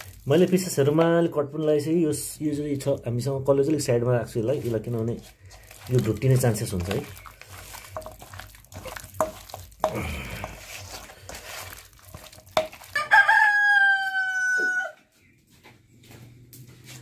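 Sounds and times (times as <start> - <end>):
hands working chicken in steel bowl: 0.0 - 14.9
rooster crowing: 12.9 - 15.1.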